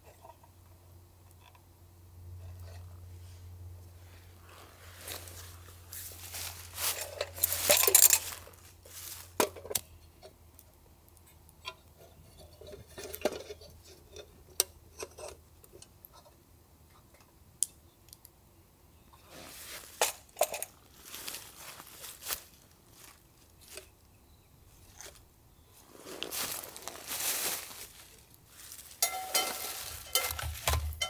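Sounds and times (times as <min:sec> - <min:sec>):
rustling: 0:02.4 - 0:09.8, 0:19.1 - 0:31.0.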